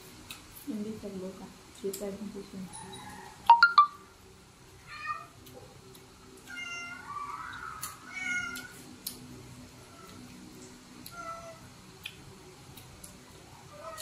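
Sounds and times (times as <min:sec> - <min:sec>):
cat meowing: 0:04.9 - 0:05.4, 0:06.5 - 0:07.4, 0:08.1 - 0:08.7, 0:11.1 - 0:11.6, 0:13.7 - 0:14.0.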